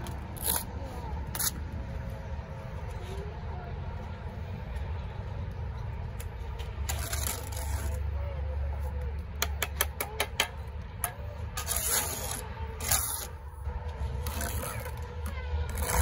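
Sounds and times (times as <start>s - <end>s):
steady low rumble: 0.0s - 16.0s
trowel scraping mortar: 6.9s - 8.0s, 11.5s - 13.4s, 15.7s - 16.0s
sharp taps on concrete block: 9.2s - 11.2s.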